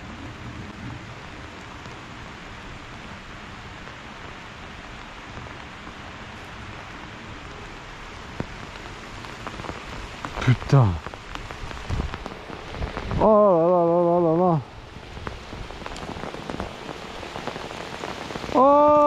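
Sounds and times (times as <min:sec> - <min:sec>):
steady rain: 0:00.0 - 0:19.0.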